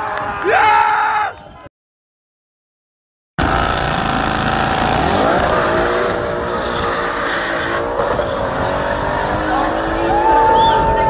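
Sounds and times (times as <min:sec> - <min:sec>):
car engines at full throttle: 0:03.4 - 0:11.0.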